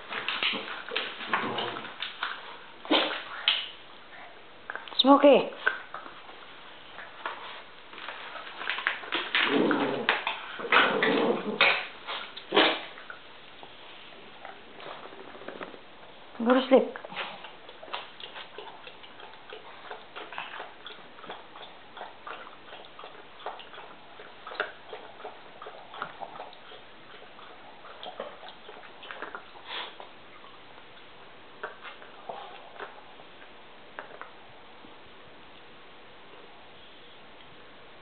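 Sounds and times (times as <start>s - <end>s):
dogs shifting in a dog bed: 0.0s - 3.6s.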